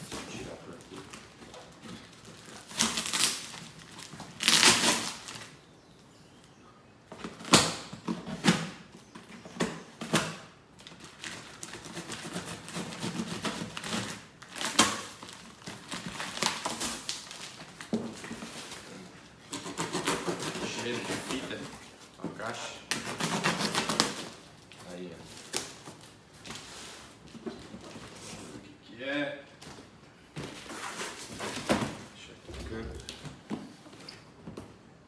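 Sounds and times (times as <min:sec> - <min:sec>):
packing tape ripping: 0:02.0 - 0:05.6, 0:10.0 - 0:17.9, 0:22.8 - 0:26.0.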